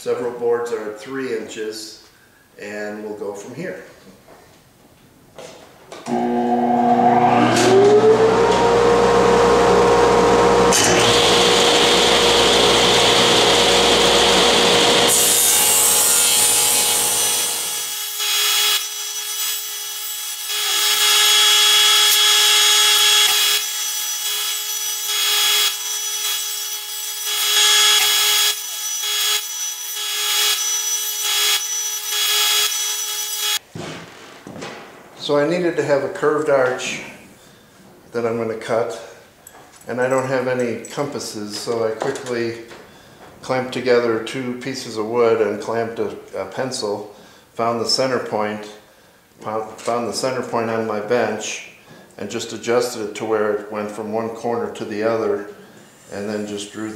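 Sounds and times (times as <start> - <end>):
table saw motor whine: 6.1 - 19.2, 20.3 - 33.6
saw blade ripping wood: 10.7 - 19.6.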